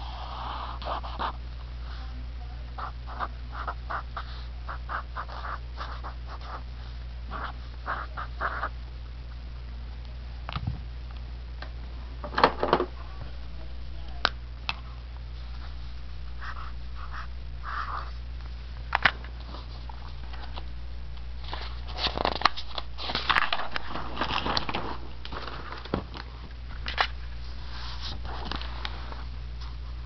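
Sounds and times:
marker scratching on paper: 0.0s - 1.4s, 2.8s - 6.6s, 7.3s - 8.7s, 16.4s - 18.2s
steady low hum: 0.0s - 30.0s.

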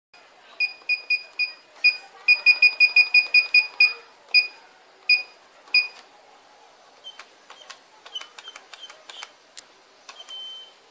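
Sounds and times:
keypad beeps: 0.6s - 6.0s, 10.1s - 10.8s.

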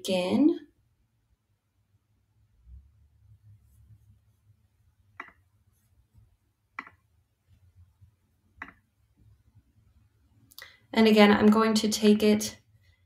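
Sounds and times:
computer mouse clicks: 5.2s - 5.4s, 6.8s - 7.0s, 8.6s - 8.8s.

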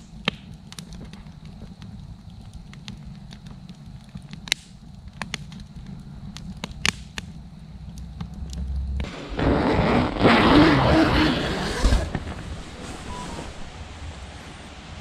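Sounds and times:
campfire crackling and popping: 0.0s - 14.0s
tent fabric rustling: 9.4s - 13.8s.

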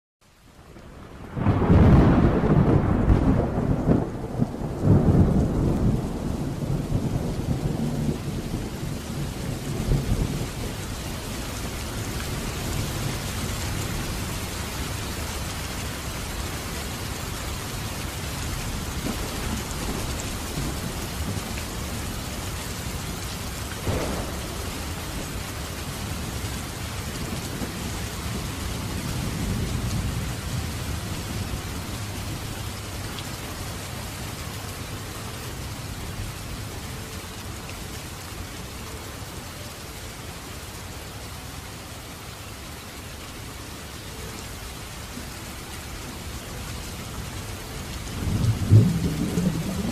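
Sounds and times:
heavy rain pouring: 0.2s - 49.9s
thunder rumbling: 0.9s - 17.3s, 17.9s - 33.0s, 47.8s - 49.9s.

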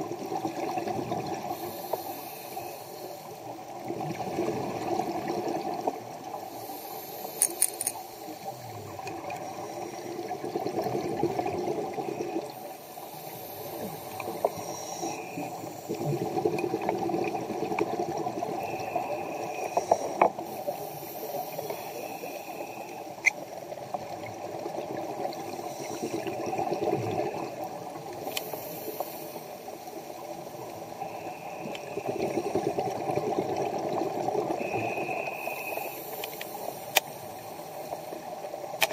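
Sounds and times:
exhaled bubbles rushing: 0.0s - 1.6s, 3.8s - 6.2s, 8.7s - 12.6s, 13.8s - 19.7s, 23.8s - 28.3s, 31.6s - 35.1s
regulator inhalation hiss: 1.4s - 3.6s, 6.4s - 10.1s, 12.5s - 16.0s, 18.6s - 23.3s, 25.4s - 26.7s, 28.2s - 32.6s, 34.6s - 38.2s.

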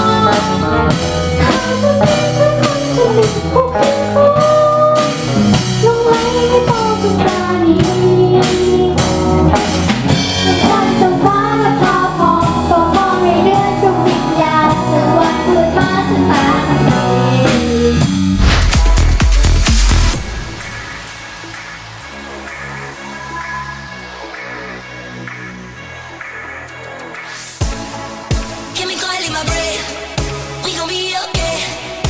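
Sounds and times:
child singing: 0.0s - 9.2s, 10.5s - 18.1s, 28.8s - 29.9s, 30.6s - 32.0s
drum kit beat: 0.0s - 23.6s, 25.2s - 32.0s
bass guitar: 0.0s - 32.0s
electric guitar: 0.0s - 32.0s.

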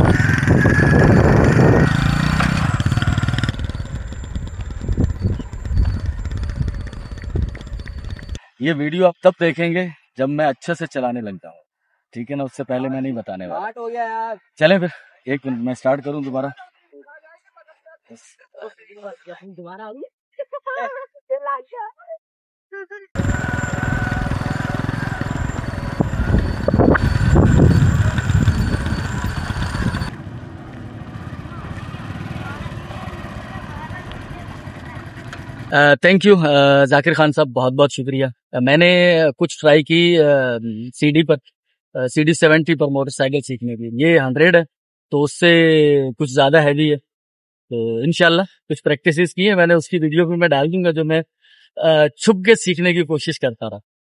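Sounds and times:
motorcycle engine riding off: 0.0s - 8.4s, 23.2s - 35.8s.

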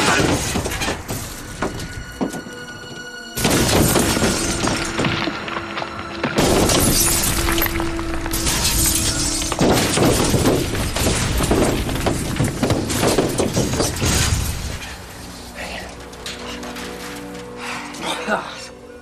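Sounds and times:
loud crashing and shattering: 0.0s - 2.0s, 3.4s - 15.1s
dramatic music: 0.0s - 19.0s.

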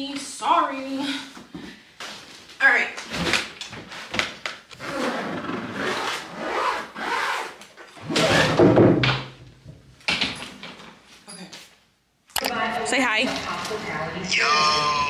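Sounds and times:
suitcase zipper rasping: 4.8s - 8.6s.

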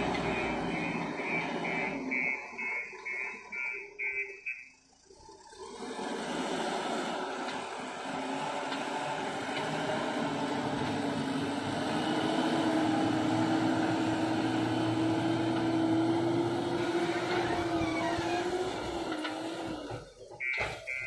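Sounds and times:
diesel engine under load: 0.0s - 21.0s.

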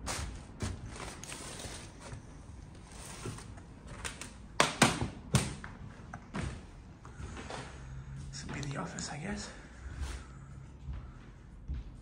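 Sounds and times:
footsteps on littered floor: 6.3s - 12.0s.

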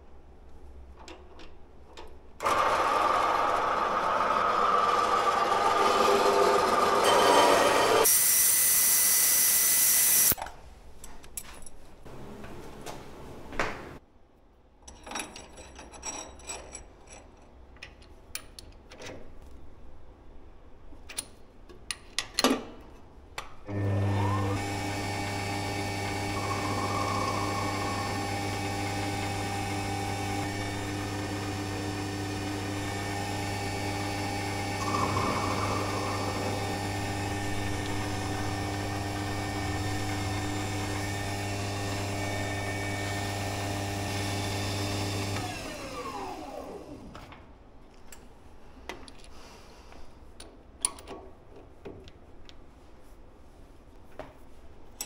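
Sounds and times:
spindle motor hum and whine: 23.7s - 47.1s.

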